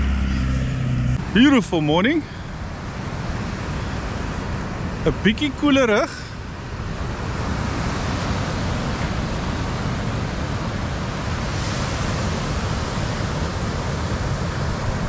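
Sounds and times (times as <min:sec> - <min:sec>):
surf washing onto beach: 0:01.2 - 0:15.0
wind on microphone: 0:06.7 - 0:15.0.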